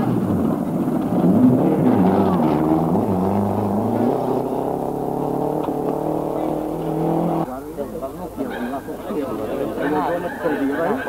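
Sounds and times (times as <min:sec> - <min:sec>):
car driving on gravel: 0:00.0 - 0:07.5
car engine revving: 0:00.0 - 0:07.6.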